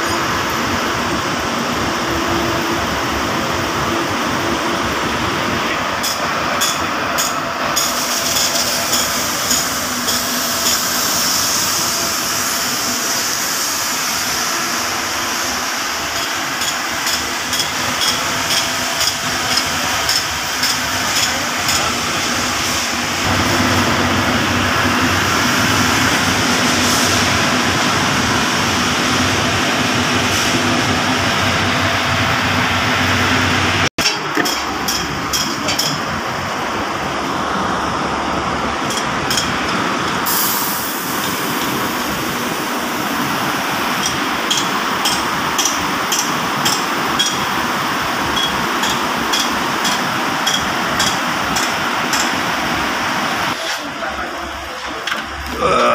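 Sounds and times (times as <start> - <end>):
steady mechanical noise: 0.0 - 55.9
sharp metallic knocks: 44.0 - 47.5, 48.3 - 52.4.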